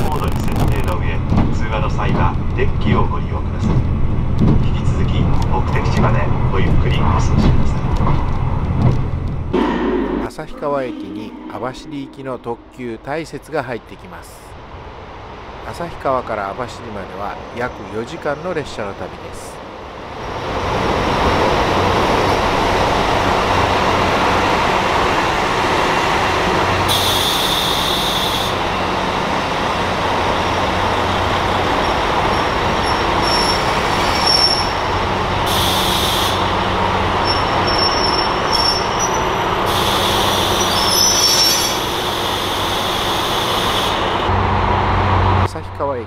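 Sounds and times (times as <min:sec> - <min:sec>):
train wheel rumble: 0:00.0 - 0:45.5
diesel engines humming: 0:16.4 - 0:46.0
high-pitched hissing squeals: 0:31.8 - 0:36.6, 0:37.2 - 0:44.2.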